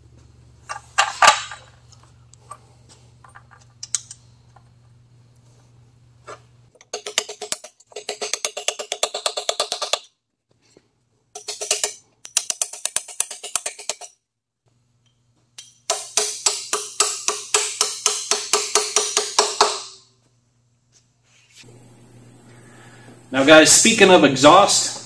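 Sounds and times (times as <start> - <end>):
low steady hum: 0.0 - 6.8, 20.0 - 25.0.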